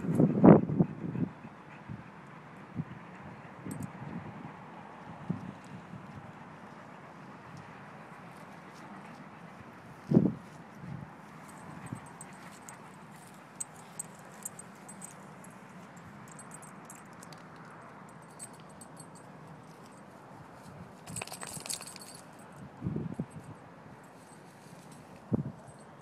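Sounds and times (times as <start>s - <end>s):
faint outdoor background: 0.0s - 26.0s
dog tags jingling: 11.4s - 20.0s, 21.0s - 22.6s.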